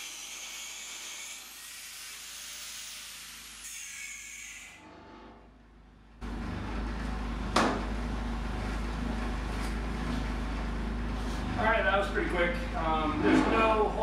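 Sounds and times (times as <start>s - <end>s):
steady low hum: 5.1s - 14.0s.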